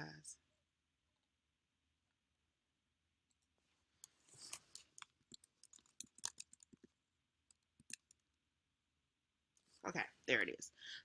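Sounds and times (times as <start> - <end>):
faint keyboard typing: 4.0 - 8.3.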